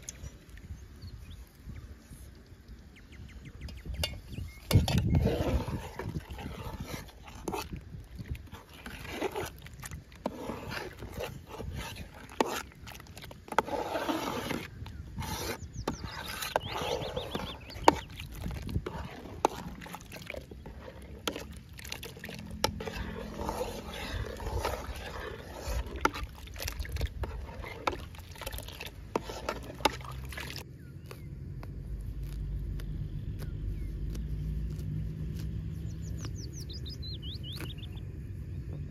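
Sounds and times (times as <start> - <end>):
metal ladle scraping a pot: 3.6 - 30.7.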